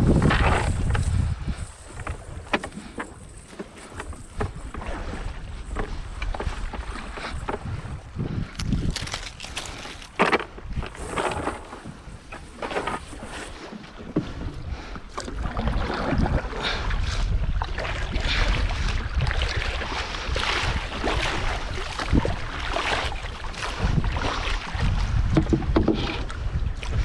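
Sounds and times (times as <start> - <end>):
water splashing around a boat: 0.0 - 27.0
wind rumble on microphone: 0.0 - 27.0
knocks on wooden boat: 25.3 - 26.2.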